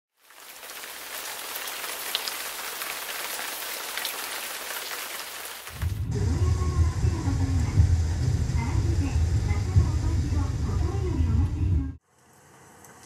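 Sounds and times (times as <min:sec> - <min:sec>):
rain falling: 0:00.1 - 0:06.1.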